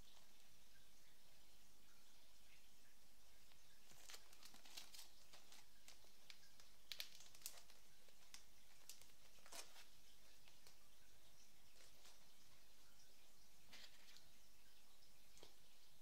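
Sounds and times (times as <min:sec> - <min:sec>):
light clicks and crackles: 0:03.4 - 0:12.7, 0:15.2 - 0:15.7
paper and plastic crinkling: 0:03.8 - 0:10.8, 0:11.7 - 0:12.6, 0:13.7 - 0:14.3.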